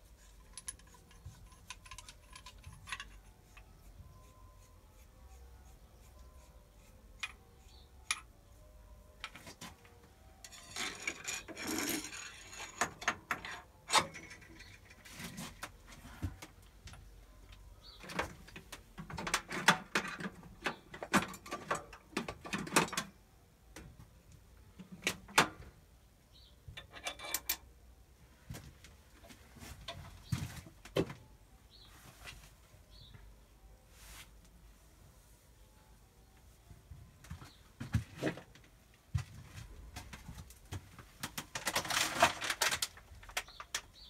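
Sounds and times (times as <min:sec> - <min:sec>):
metal parts clinking: 0:00.2 - 0:03.6, 0:10.4 - 0:15.1, 0:26.8 - 0:27.7.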